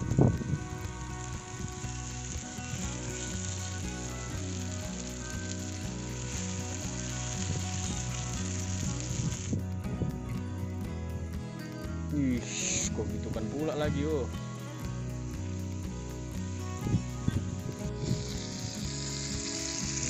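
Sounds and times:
vegetables sizzling in a frying pan: 0:00.0 - 0:09.8, 0:14.9 - 0:20.0.

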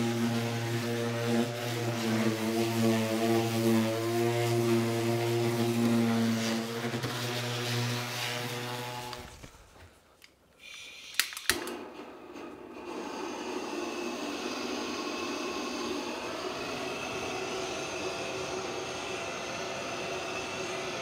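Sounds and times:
gas torch igniter clicks: 0:10.7 - 0:11.8
torch flame hissing: 0:12.6 - 0:21.0.

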